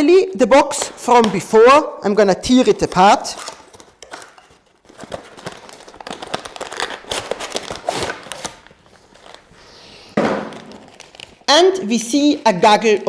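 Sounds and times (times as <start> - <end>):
plastic bags crinkling: 2.9 - 13.0.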